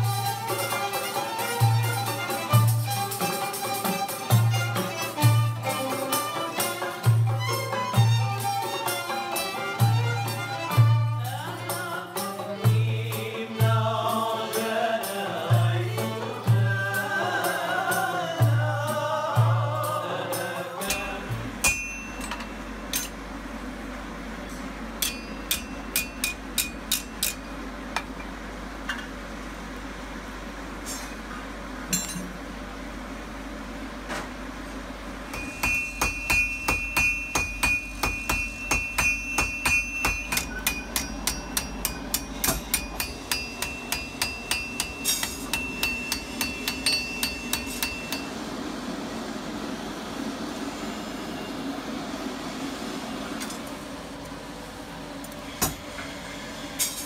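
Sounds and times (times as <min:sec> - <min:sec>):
hammers striking iron on anvil: 0:20.8 - 0:23.2, 0:25.0 - 0:28.2, 0:31.9 - 0:32.3, 0:35.3 - 0:48.4
anvil ringing: 0:20.9 - 0:23.2, 0:25.0 - 0:27.5, 0:31.9 - 0:32.3, 0:35.3 - 0:48.3.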